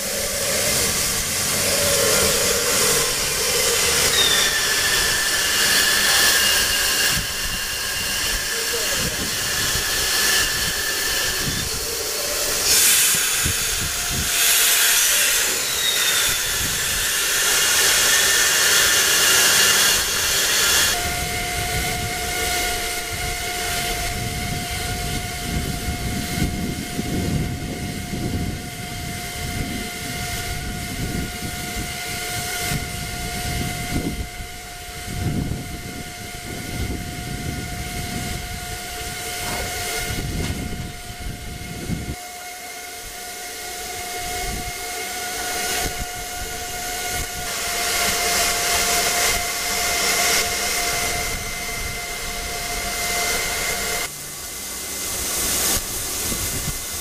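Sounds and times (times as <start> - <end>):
low rumbling: 0.0 - 14.4
steady high tone: 0.0 - 56.5
steam locomotive hissing: 0.0 - 57.0.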